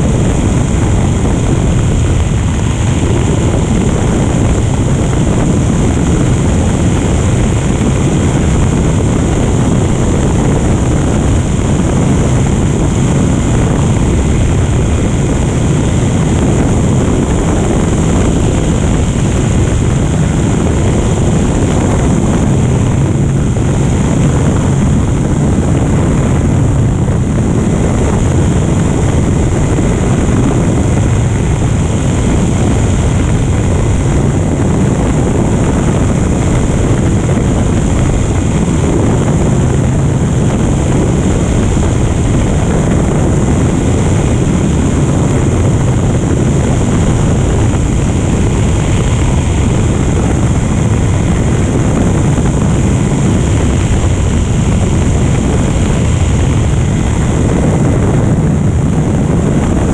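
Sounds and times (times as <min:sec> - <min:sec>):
propeller aircraft drone: 0:00.0 - 0:59.9.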